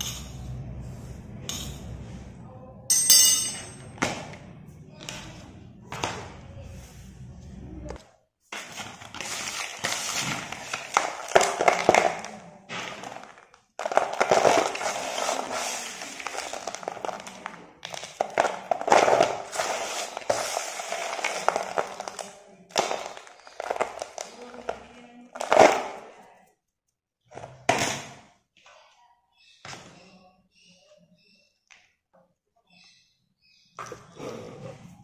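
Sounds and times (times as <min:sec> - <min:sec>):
gritty pieces crunching and rattling: 0:12.9 - 0:24.8.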